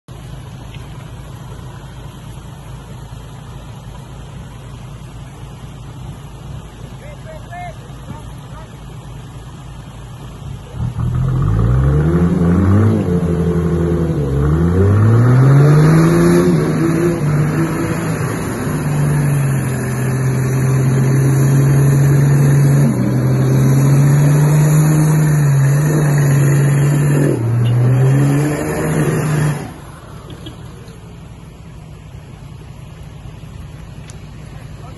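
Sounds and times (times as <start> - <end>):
off-road engine revving hard: 10.4 - 30.7.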